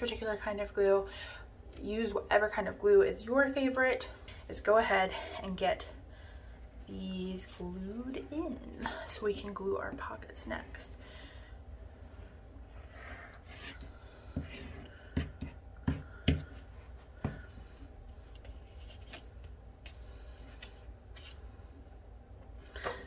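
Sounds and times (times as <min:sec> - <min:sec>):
paper rustling: 0:18.2 - 0:21.4.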